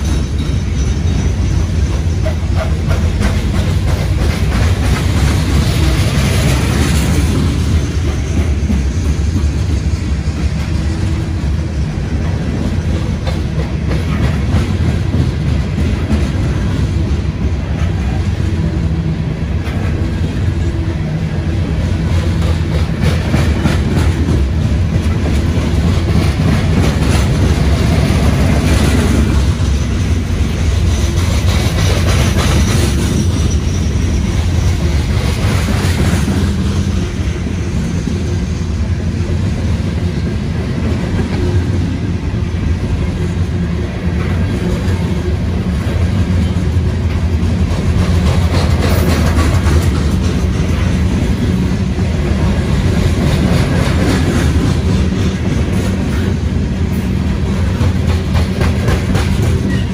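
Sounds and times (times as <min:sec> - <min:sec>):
clatter over rail joints: 0:00.0 - 0:11.5, 0:12.2 - 0:18.2, 0:21.8 - 0:37.0, 0:44.0 - 0:51.7, 0:52.4 - 0:59.9
train wheels rumbling on rail: 0:00.0 - 0:59.9.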